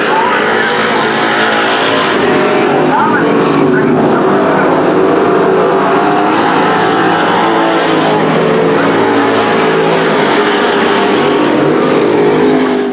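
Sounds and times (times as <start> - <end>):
race car engines running hard: 0.0 - 12.9.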